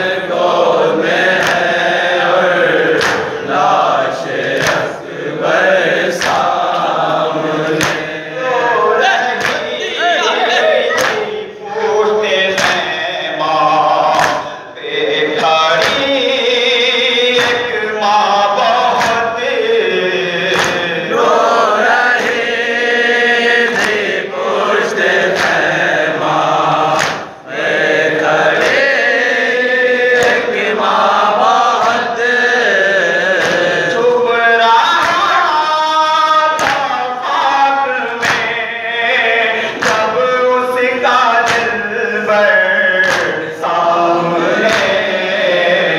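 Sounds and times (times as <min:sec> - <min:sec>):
men chanting lament: 0:00.0 - 0:45.9
hands slapping chests: 0:01.3 - 0:01.8, 0:02.9 - 0:03.4, 0:04.3 - 0:05.0, 0:06.1 - 0:07.0, 0:07.7 - 0:08.1, 0:09.4 - 0:09.7, 0:10.9 - 0:11.3, 0:12.5 - 0:12.9, 0:14.1 - 0:14.5, 0:15.4 - 0:16.0, 0:17.4 - 0:17.7, 0:18.9 - 0:19.2, 0:20.5 - 0:20.9, 0:23.7 - 0:24.2, 0:25.3 - 0:25.8, 0:26.8 - 0:27.4, 0:30.1 - 0:30.5, 0:31.8 - 0:32.1, 0:33.4 - 0:34.0, 0:35.0 - 0:35.3, 0:36.5 - 0:37.0, 0:38.2 - 0:38.5, 0:39.7 - 0:40.2, 0:41.4 - 0:41.8, 0:43.0 - 0:43.5, 0:44.5 - 0:45.1.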